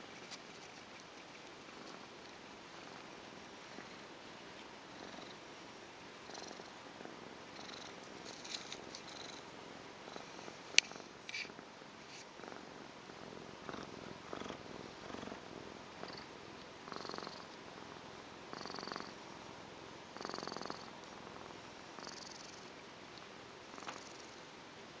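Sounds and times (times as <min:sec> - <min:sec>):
cat purring: 0:00.0 - 0:22.8, 0:23.6 - 0:24.4.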